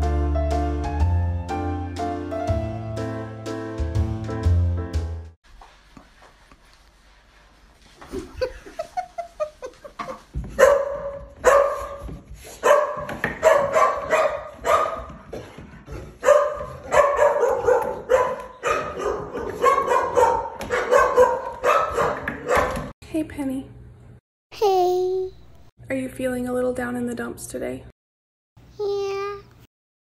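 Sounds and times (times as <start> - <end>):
large dog barking: 12.6 - 15.2, 16.1 - 22.8.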